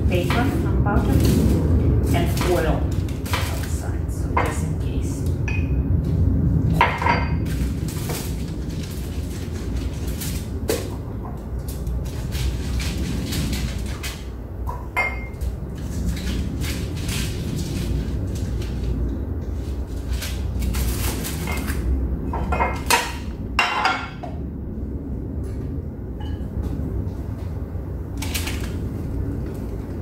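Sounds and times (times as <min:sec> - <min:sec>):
aluminium foil crinkling: 0:00.1 - 0:04.8, 0:07.4 - 0:14.4, 0:15.4 - 0:21.9, 0:28.2 - 0:28.8.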